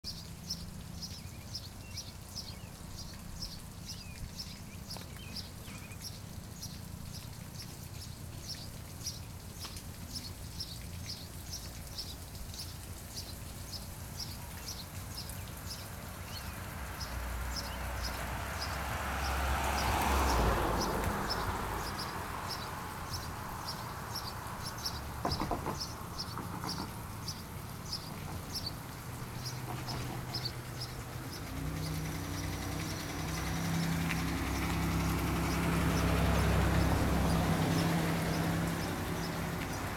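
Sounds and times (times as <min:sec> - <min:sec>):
vehicle passing: 0:15.6 - 0:39.9.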